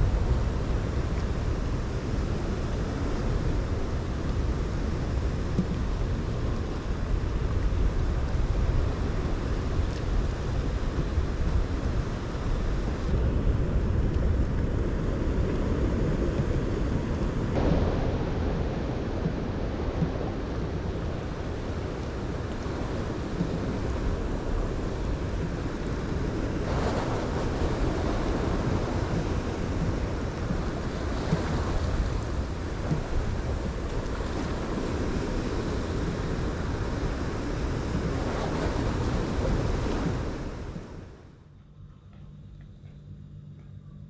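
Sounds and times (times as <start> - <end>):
sea waves washing: 0.0 - 41.4
wind on microphone: 0.0 - 41.4.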